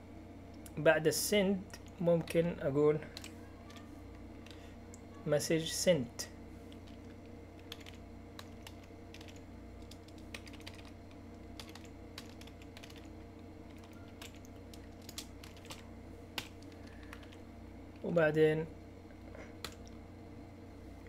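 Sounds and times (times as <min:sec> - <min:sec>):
low background hum: 0:00.0 - 0:21.0
keyboard typing clicks: 0:06.7 - 0:13.1, 0:13.7 - 0:15.8.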